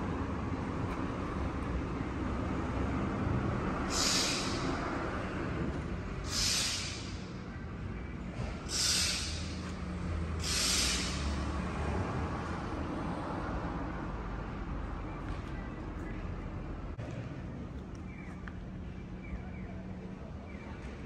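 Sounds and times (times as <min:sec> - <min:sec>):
hissing breaths: 0:03.9 - 0:05.0, 0:06.2 - 0:07.4, 0:08.6 - 0:11.5.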